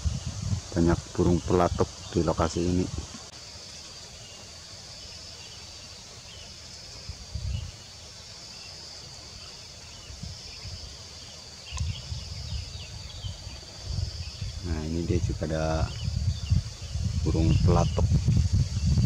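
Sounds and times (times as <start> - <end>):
wind buffeting microphone: 0.0 - 3.3, 7.0 - 7.8, 9.9 - 11.0, 11.6 - 19.0
insect buzz: 0.0 - 19.0
faint bird chirps: 3.7 - 18.1.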